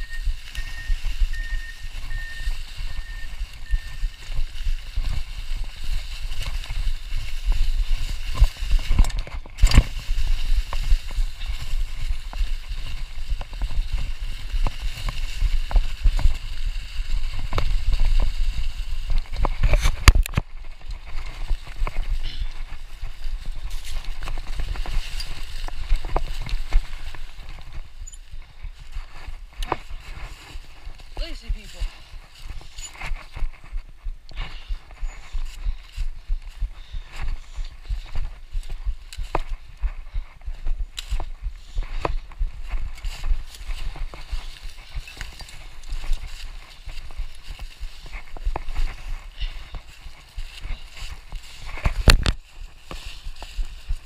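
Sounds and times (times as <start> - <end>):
mountain bike rumbling over trail: 0.0 - 31.4.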